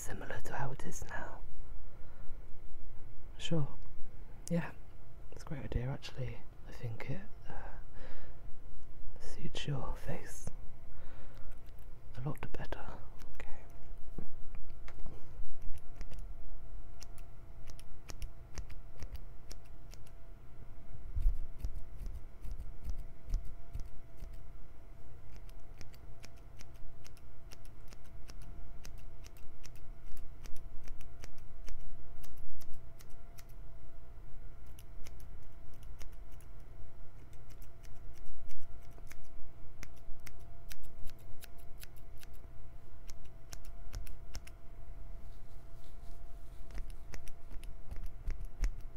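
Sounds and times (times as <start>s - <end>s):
faint steady hum: 0.0s - 48.9s
scissors snipping: 15.6s - 16.2s, 17.0s - 20.2s, 21.2s - 24.4s, 25.3s - 33.6s, 34.6s - 42.4s, 43.0s - 44.6s, 46.6s - 48.9s.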